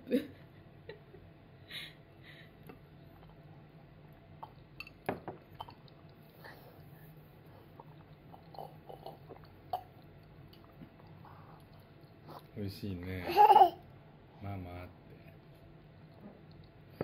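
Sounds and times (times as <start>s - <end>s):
toddler sipping and swallowing: 4.4s - 12.6s
cup clicks and knocks: 4.8s - 5.5s.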